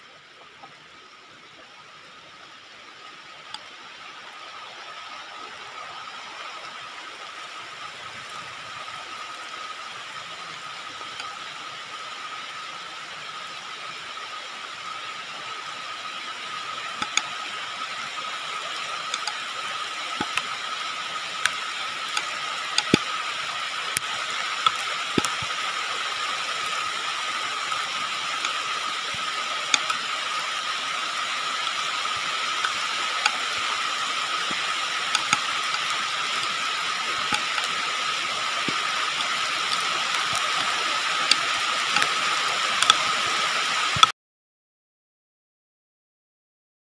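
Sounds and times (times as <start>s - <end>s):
sharp clicks: 20.2s - 20.6s, 21.4s - 23.2s, 23.9s - 25.5s, 29.6s - 30.0s, 32.6s - 44.1s.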